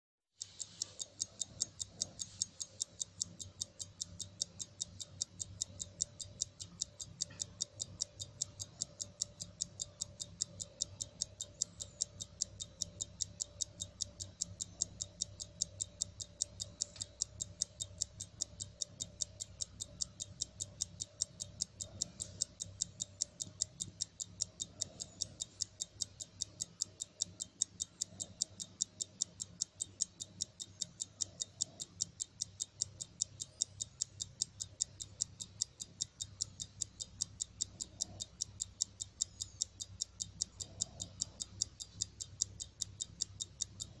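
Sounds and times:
wristwatch ticking: 0.3s - 44.0s.

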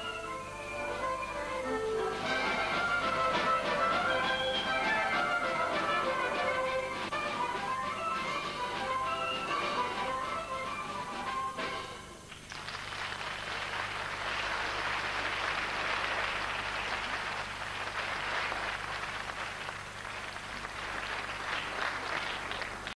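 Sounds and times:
faint low hum: 0.0s - 23.0s
audience applauding: 2.0s - 6.9s, 12.3s - 23.0s.

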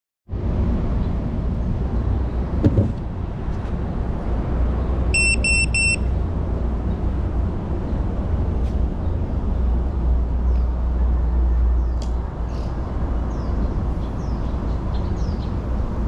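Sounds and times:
thump: 2.6s - 3.0s
short high electronic beeps: 5.2s - 6.1s.

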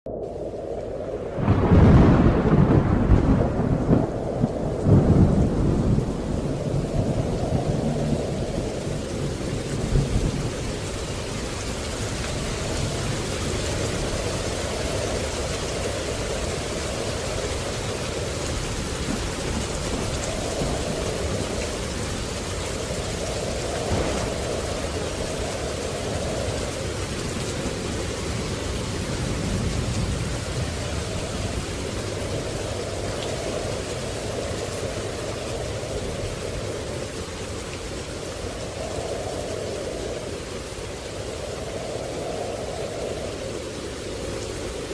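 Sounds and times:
steady rain: 0.1s - 44.9s
thunder rumbling: 0.1s - 44.9s
thunder crack: 1.2s - 10.4s, 23.4s - 27.8s.

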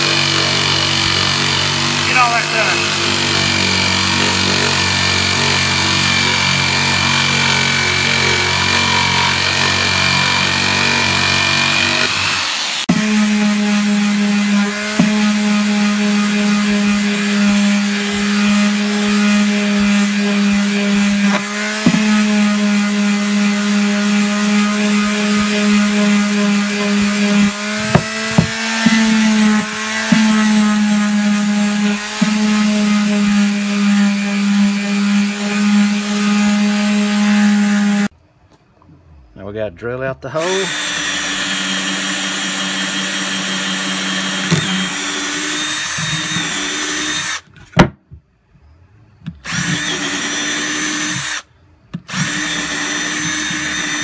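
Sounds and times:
electric jigsaw cutting wood: 0.0s - 38.1s, 40.4s - 47.5s, 49.4s - 54.0s
palm sander humming: 0.0s - 38.1s, 40.4s - 47.4s, 49.5s - 51.4s, 52.1s - 54.0s.

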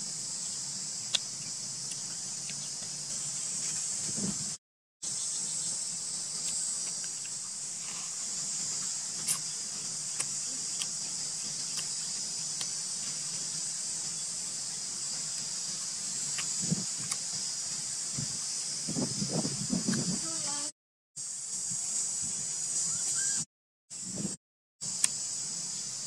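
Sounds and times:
insect chorus drone: 0.0s - 26.0s.

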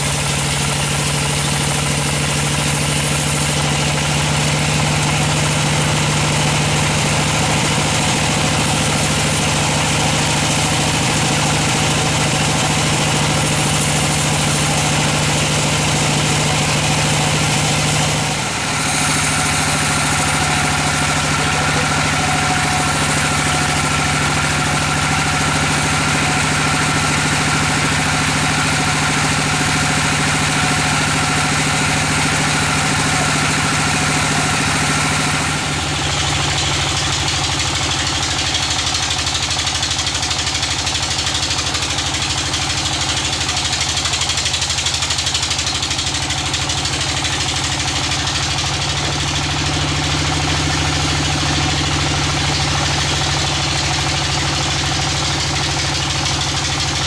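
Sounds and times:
band saw machine hum: 0.0s - 57.0s
saw blade cutting hiss: 8.4s - 9.6s, 13.1s - 15.9s, 18.6s - 25.9s.

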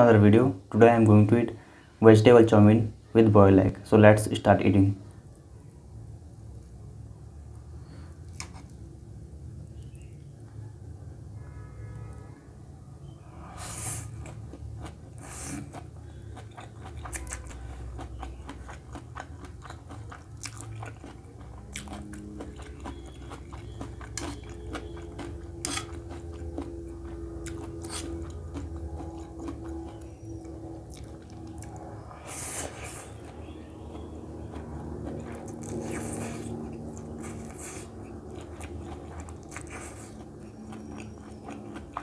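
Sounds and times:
wet chewing with mouth clicks: 14.0s - 42.0s.

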